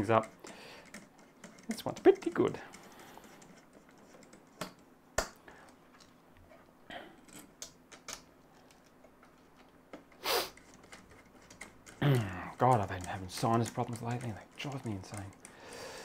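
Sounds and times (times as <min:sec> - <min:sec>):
small clicks of computer parts: 0:07.2 - 0:15.6
person sniffing: 0:10.2 - 0:10.6.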